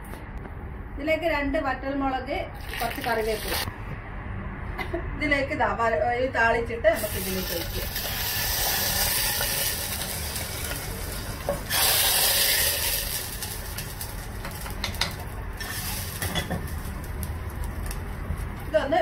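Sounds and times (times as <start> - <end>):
spices sizzling in hot oil: 2.6 - 3.7, 7.0 - 19.0.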